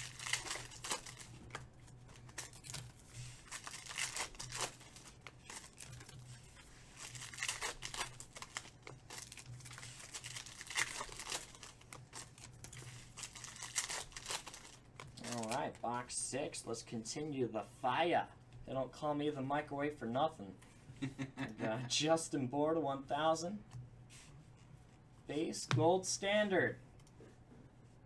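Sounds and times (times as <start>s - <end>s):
foil wrapper tearing and crinkling: 0.0s - 15.7s.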